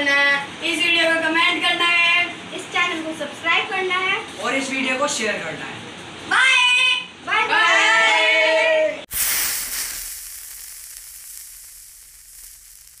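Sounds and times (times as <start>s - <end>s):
steady hiss: 9.1s - 13.0s.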